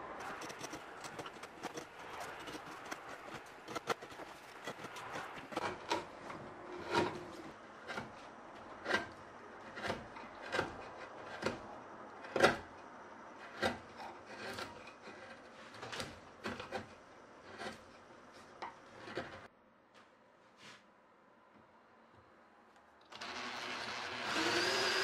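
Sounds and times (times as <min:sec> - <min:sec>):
carving gouge scraping wood: 0:00.0 - 0:19.5.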